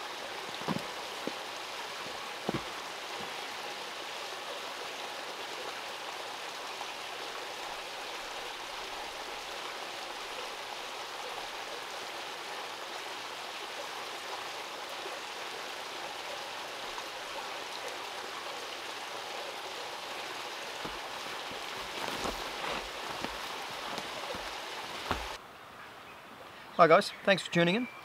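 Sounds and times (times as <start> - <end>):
stream rushing: 0.0 - 25.4
person moving through undergrowth: 0.5 - 1.4, 20.8 - 25.4.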